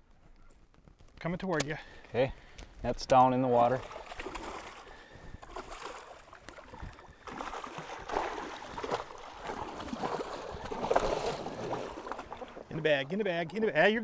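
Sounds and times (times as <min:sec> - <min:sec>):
fish splashing at surface: 0:03.8 - 0:12.7.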